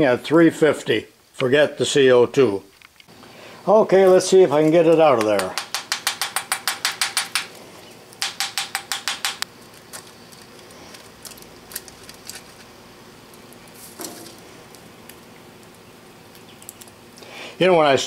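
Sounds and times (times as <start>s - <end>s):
foil crinkling: 9.5s - 17.2s.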